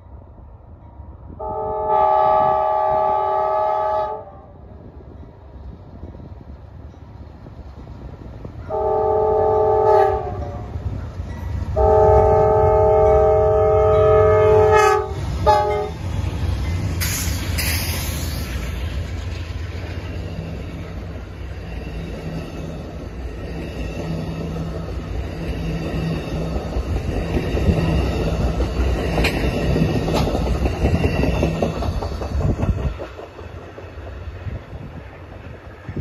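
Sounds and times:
diesel locomotive engines droning: 0.0s - 36.0s
train cars clattering over rail joints: 26.6s - 34.3s.

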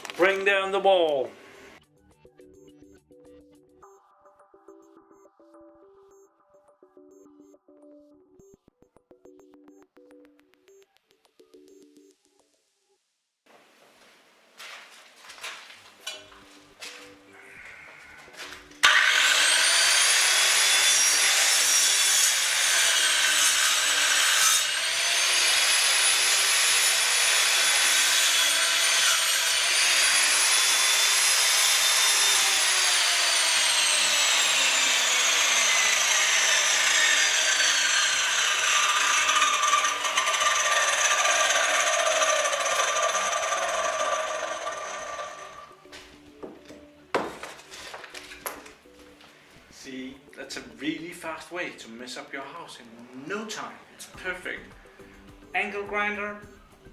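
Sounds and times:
angle grinder cutting brick: 18.6s - 45.7s.

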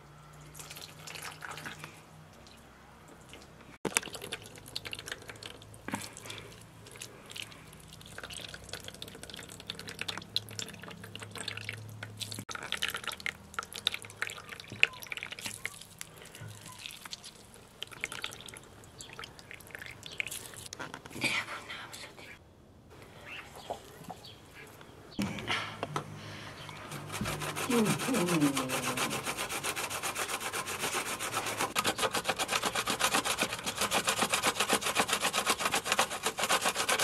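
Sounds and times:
water dripping into a basin: 0.3s - 20.7s.

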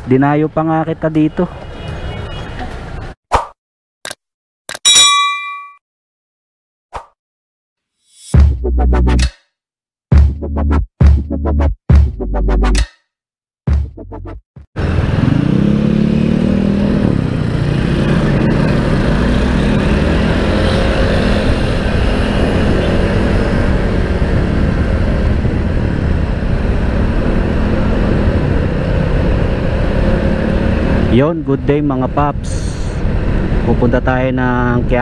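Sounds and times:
wind and road noise: 0.0s - 3.2s, 14.8s - 35.0s
motorcycle engine accelerating: 14.8s - 31.2s.

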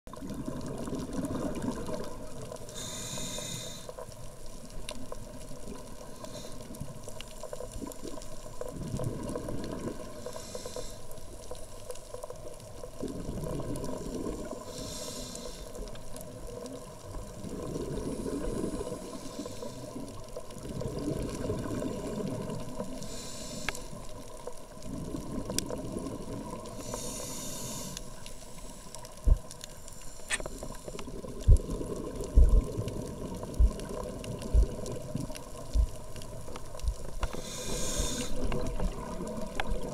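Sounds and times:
exhaled bubbles rumbling: 0.1s - 2.7s, 7.7s - 10.3s, 12.7s - 14.8s, 16.2s - 23.3s, 24.5s - 27.4s, 28.9s - 29.7s, 30.3s - 39.9s
faint clicks: 1.6s - 13.1s, 21.4s - 39.9s
scuba regulator hissing inhale: 2.6s - 4.1s, 6.0s - 6.8s, 10.1s - 11.3s, 14.1s - 16.0s, 18.0s - 20.2s, 22.9s - 24.1s, 26.6s - 29.0s, 29.7s - 31.1s, 37.2s - 39.2s.

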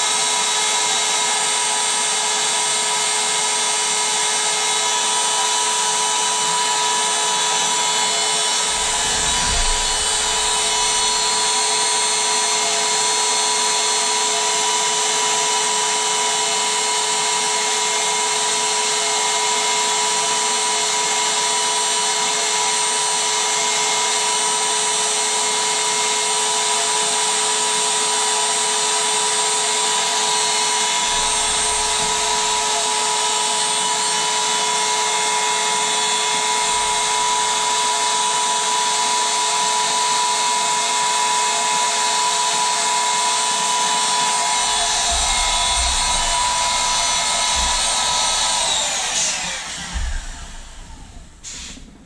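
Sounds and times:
electric air pump whining: 0.0s - 52.0s
brief low rumbles: 8.5s - 11.6s
air rushing hiss: 8.6s - 11.7s, 50.0s - 51.9s.

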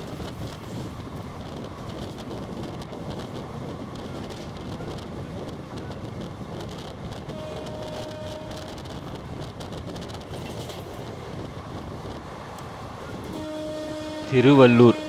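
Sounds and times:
wind rushing: 0.0s - 14.3s
train wheels on rail: 0.0s - 15.0s
train horn: 7.3s - 9.0s, 13.2s - 15.0s.

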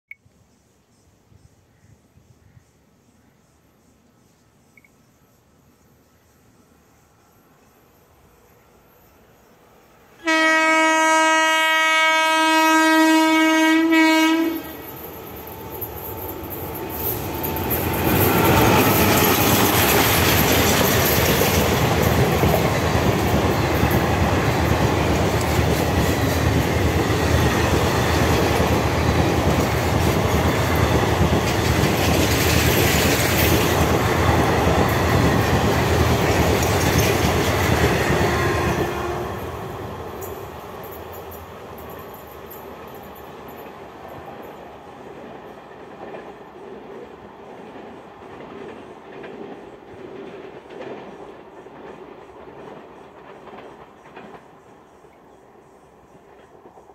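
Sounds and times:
train horn blast: 10.2s - 15.0s, 38.2s - 39.6s
train wheels clattering over rails: 14.8s - 55.2s.

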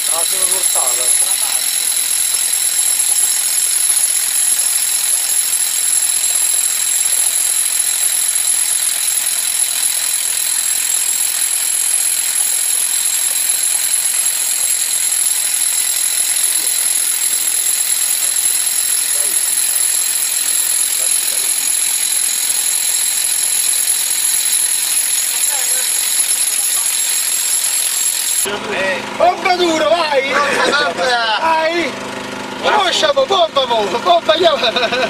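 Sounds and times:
electric hammer drill boring into rock: 0.0s - 28.5s.

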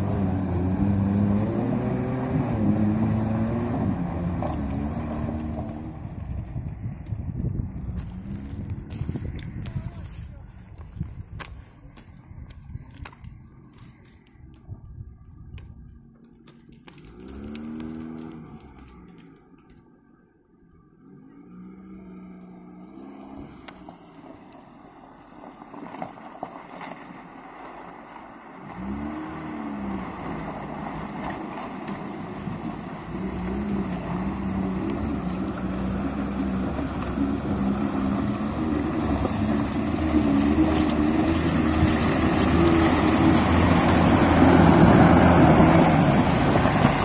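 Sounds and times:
car engine revving: 0.0s - 6.0s, 16.9s - 19.5s, 28.6s - 47.0s.

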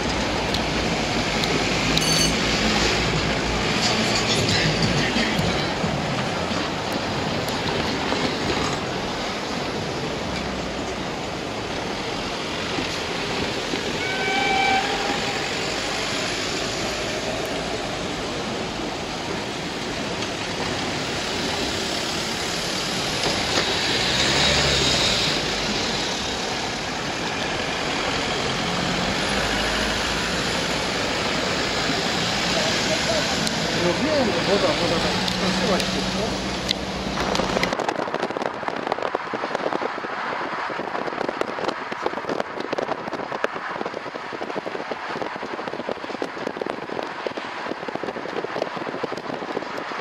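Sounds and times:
steam locomotive rush of steam: 0.0s - 50.0s
steam whistle toot: 14.0s - 15.4s.

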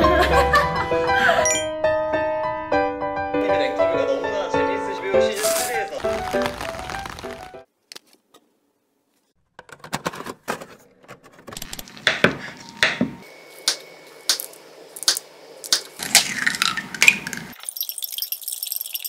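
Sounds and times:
egg cracking into glass mug: 14.3s - 19.0s.

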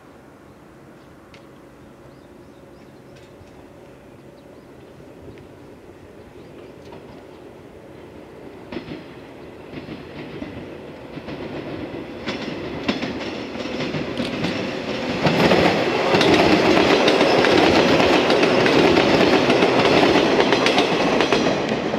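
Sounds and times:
train wheels clacking on rail joints: 2.8s - 4.0s, 8.7s - 21.9s.

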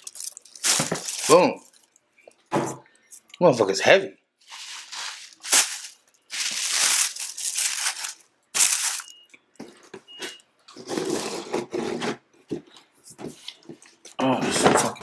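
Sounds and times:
wrapping paper rustling: 0.0s - 2.0s, 4.4s - 9.2s.

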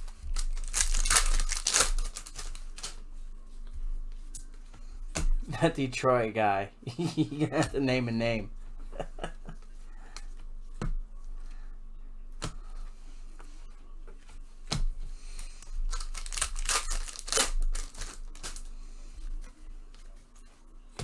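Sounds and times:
cards clicking and rustling: 0.0s - 3.0s, 15.4s - 18.7s
wrappers tearing and crinkling: 0.0s - 3.0s, 15.6s - 18.7s.

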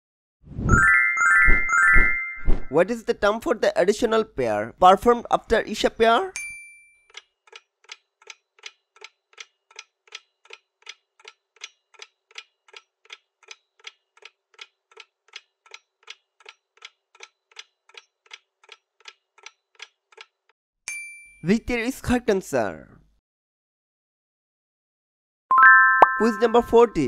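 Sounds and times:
clock ticking: 7.1s - 20.5s
short bell chime: 25.5s - 27.0s.

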